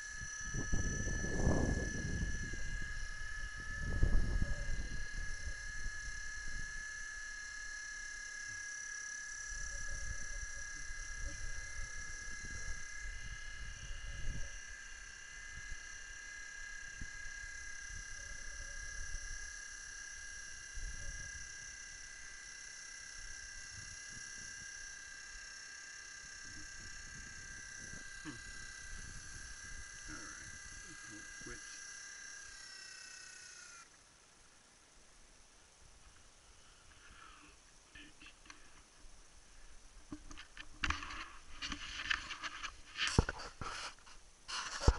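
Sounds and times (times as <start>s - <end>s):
wind rumble on microphone: 0.0s - 6.8s, 9.6s - 14.8s, 26.4s - 31.6s
insects calling: 0.0s - 35.0s, 35.6s - 44.9s.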